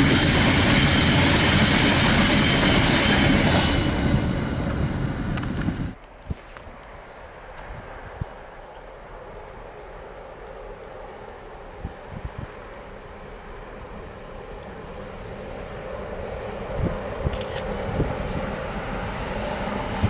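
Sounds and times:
diesel freight train rumble: 0.0 - 6.0, 13.2 - 20.0
insects chirping: 0.0 - 20.0.

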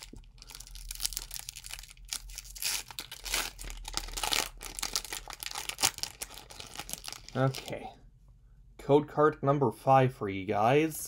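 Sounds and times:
foil wrapper tearing and crinkling: 0.0 - 7.8.

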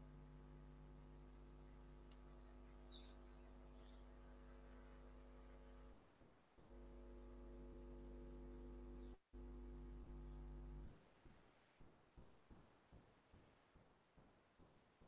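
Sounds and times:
faint electrical mains hum: 0.0 - 15.0.

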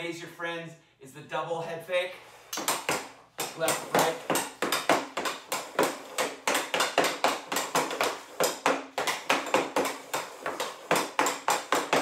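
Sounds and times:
hockey stick knocking puck: 2.5 - 12.0.

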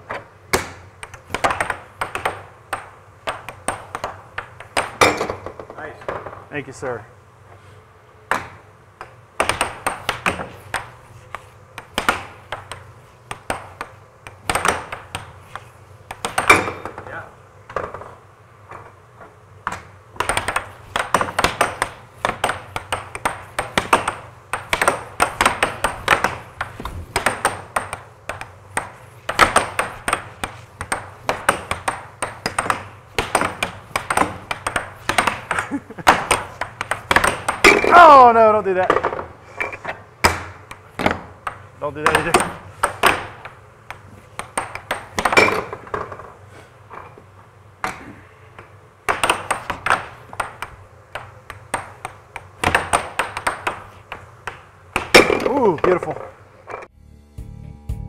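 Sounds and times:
air hockey puck clacking: 0.0 - 6.5, 8.3 - 56.9
air blower hum: 7.2 - 38.8.

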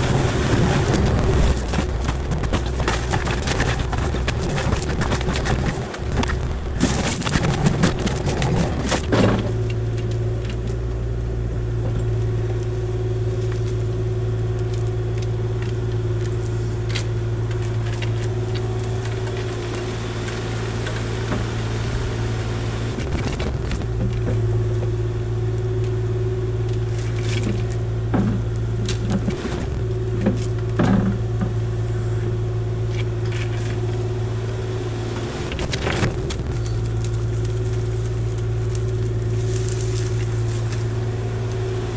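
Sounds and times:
mulcher drum hum: 0.0 - 9.5, 28.0 - 41.9
wood cracking and snapping: 0.0 - 10.1, 22.9 - 24.2, 35.2 - 41.7
diesel engine droning under load: 0.0 - 41.9.

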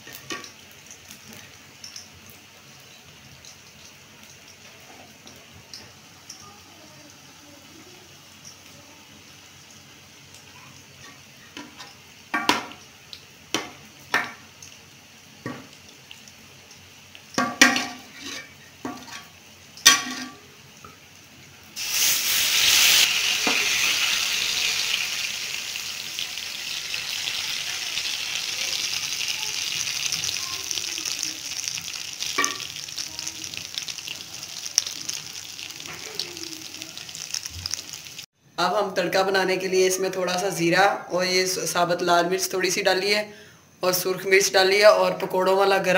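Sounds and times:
food sizzling in hot oil: 0.0 - 38.4
metal ladle scraping a pot: 18.0 - 19.3.

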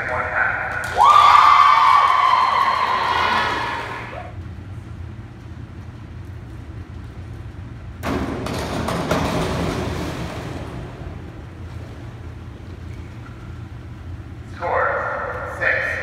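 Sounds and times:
steady low hum: 0.0 - 16.0
diving board banging: 8.0 - 12.4.

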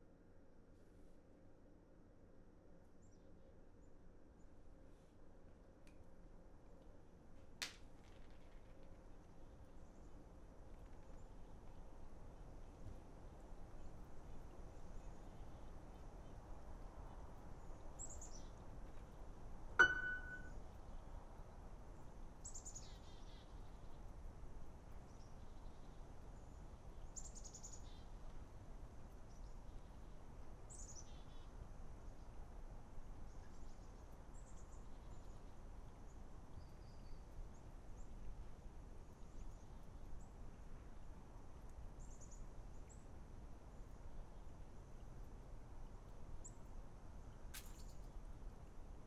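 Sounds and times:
faint steady hiss: 0.0 - 49.0
sharp click with ringing ping: 19.8 - 20.5
small bird chirping: 19.8 - 20.5.

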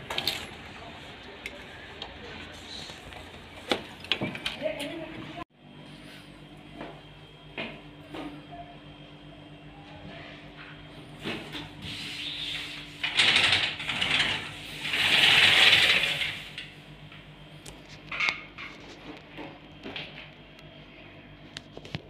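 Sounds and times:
window sash rattling scrape: 13.0 - 16.5.

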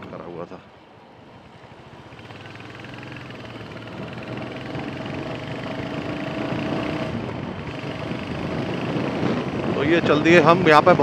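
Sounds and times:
motorcycle engine accelerating: 2.0 - 10.5.

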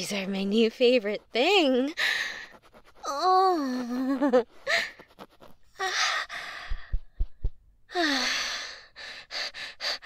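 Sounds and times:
woman sighing and moaning: 3.0 - 5.1, 5.7 - 7.1, 7.9 - 9.0
deep soft thumps: 6.6 - 7.8.

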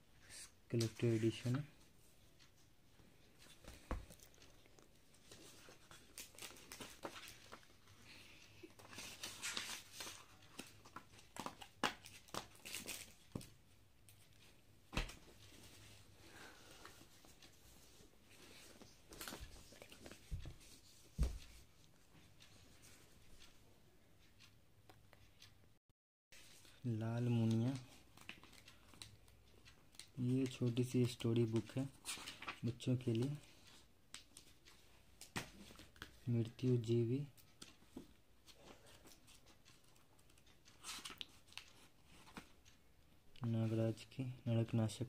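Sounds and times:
books set down with soft knocks: 14.9 - 15.3, 20.3 - 21.6.

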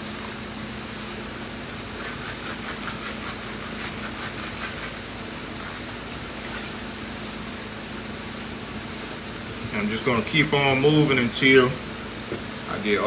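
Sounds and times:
spray bottle squirting: 1.9 - 5.0.

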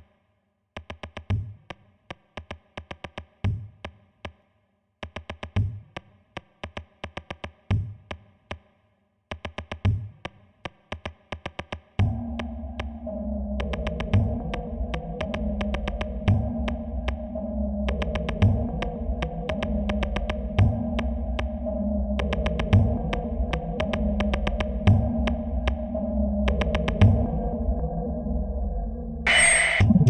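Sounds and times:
kick drums: 0.8 - 1.8, 2.4 - 4.0, 5.0 - 8.2, 9.3 - 13.0, 13.7 - 17.2, 17.9 - 21.5, 22.3 - 25.9, 26.5 - 27.4
hi-hat ticks: 17.9 - 20.5
synth bass and chords: 29.3 - 30.0.

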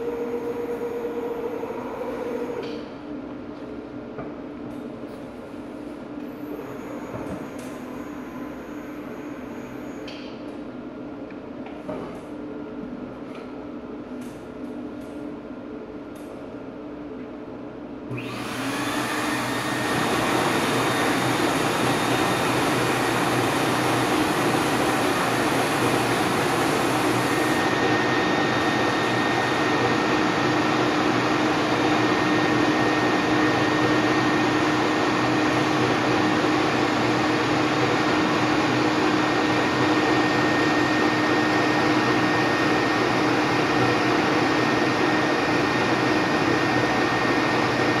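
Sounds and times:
machine motor whirring: 18.1 - 30.4.

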